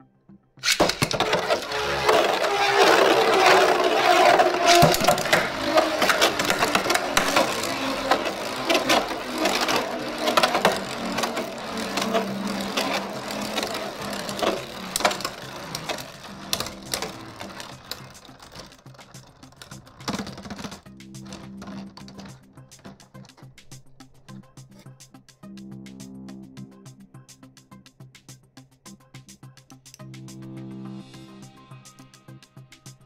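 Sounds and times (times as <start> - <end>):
spinning tops clacking together: 0.6 - 23.5
spinning tops whirring and grinding: 0.6 - 23.8.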